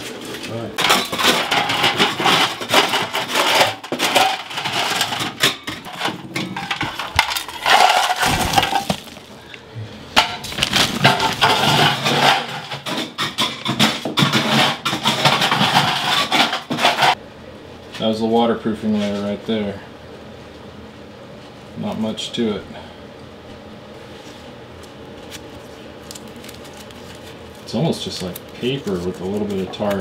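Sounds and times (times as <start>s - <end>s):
rubble chunks clattering: 0.8s - 9.6s, 10.3s - 17.2s.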